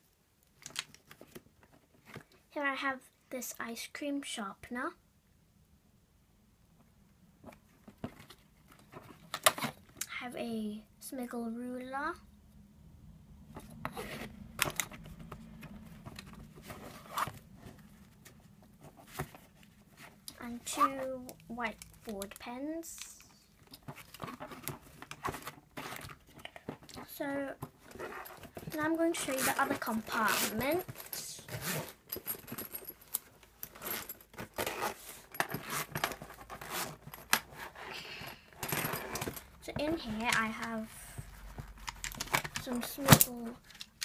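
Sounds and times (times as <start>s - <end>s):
stationery rustling in pencil case: 7.4s - 10.0s, 13.5s - 44.0s
zipper being pulled open: 13.6s - 14.4s, 15.8s - 17.8s, 27.8s - 32.1s, 33.7s - 39.4s.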